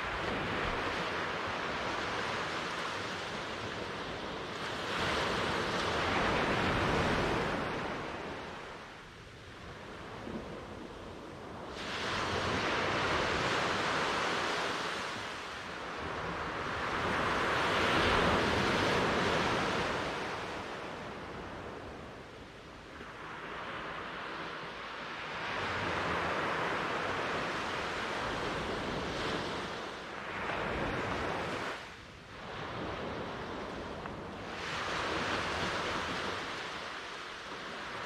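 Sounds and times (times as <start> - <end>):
waves breaking and washing in: 0.0 - 38.0.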